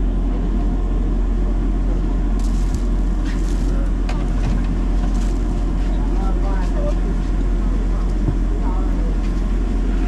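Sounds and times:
low rumble of train machinery: 0:00.0 - 0:10.0
faint voices: 0:05.2 - 0:10.0.

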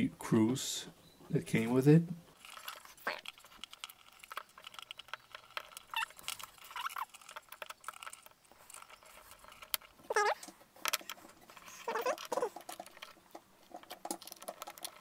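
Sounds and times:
short squeaks: 0:02.8 - 0:10.6, 0:11.4 - 0:13.2.

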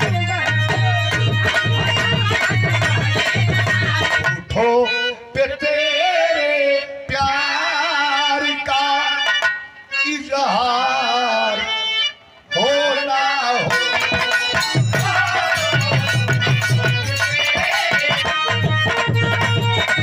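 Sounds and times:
hand drums beating: 0:00.0 - 0:04.6, 0:13.7 - 0:20.0
man singing into microphone: 0:00.0 - 0:20.0.

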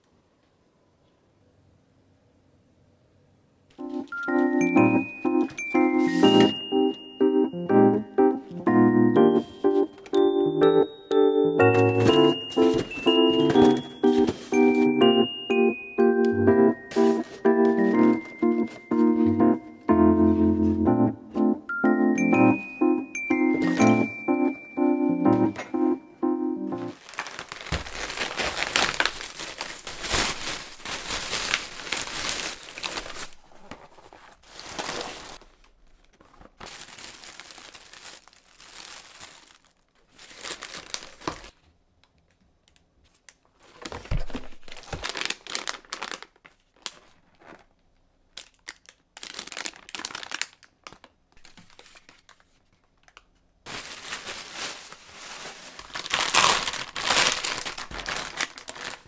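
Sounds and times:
plastic bag crinkling: 0:26.8 - 0:41.6, 0:43.7 - 0:47.7, 0:48.3 - 0:52.6, 0:53.7 - 0:59.0
plastic food packet crinkling: 0:26.9 - 0:41.6, 0:43.5 - 0:59.0.

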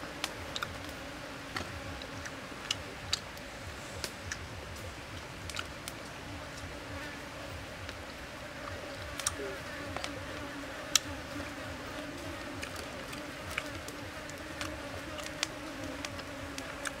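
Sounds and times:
insect buzzing: 0:00.0 - 0:17.0.

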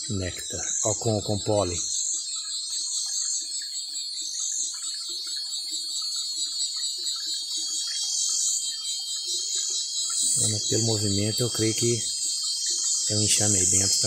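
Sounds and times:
cicadas chorus: 0:00.0 - 0:14.0
honeybees buzzing: 0:10.1 - 0:14.0.

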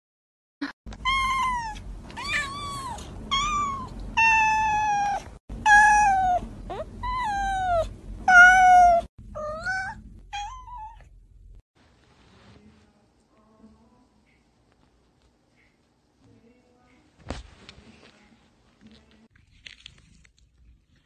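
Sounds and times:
cat meowing: 0:01.0 - 0:11.1.

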